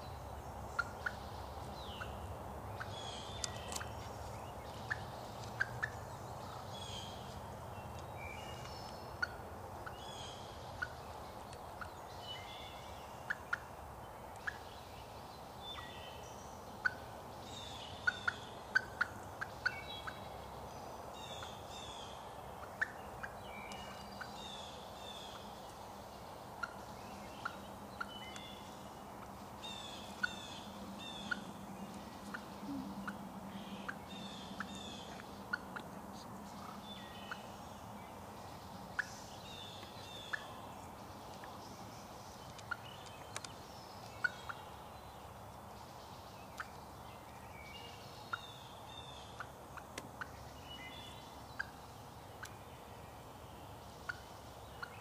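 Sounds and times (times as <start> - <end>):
songbirds singing: 0.0 - 55.0
turkey clucking: 0.8 - 1.3, 4.8 - 6.0, 22.6 - 23.4, 26.6 - 28.2, 30.1 - 31.5, 33.8 - 35.9.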